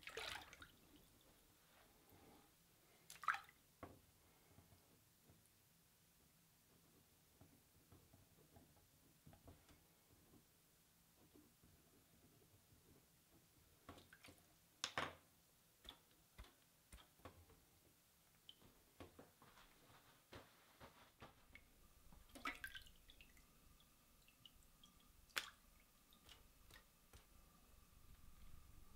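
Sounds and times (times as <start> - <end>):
water dripping in a steel sink: 21.5 - 28.9.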